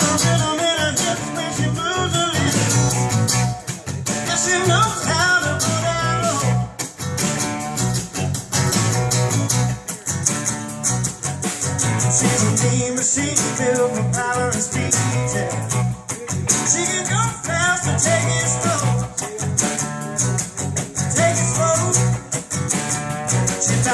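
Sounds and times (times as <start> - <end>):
man singing: 0.0 - 6.8, 11.8 - 22.5, 23.2 - 23.9
electric guitar: 0.0 - 23.9
steady drum beat: 0.0 - 23.9
strummed acoustic guitar: 0.0 - 23.9.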